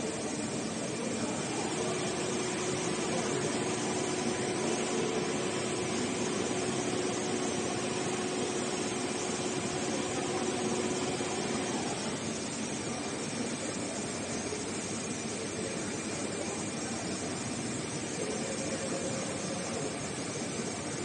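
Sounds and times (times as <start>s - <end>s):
sewing machine whirring: 0.0s - 14.5s.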